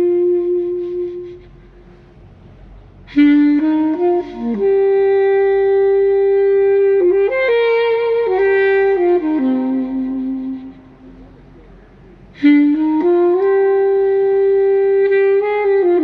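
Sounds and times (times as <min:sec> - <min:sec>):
solo melody line: 0:00.0 - 0:01.5, 0:03.0 - 0:11.4, 0:12.4 - 0:16.0.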